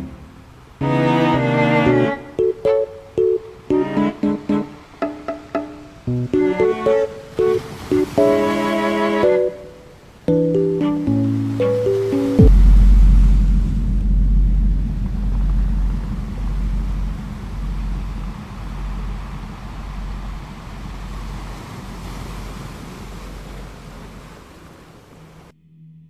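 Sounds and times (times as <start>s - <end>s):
deep rumble: 12.4s - 23.4s.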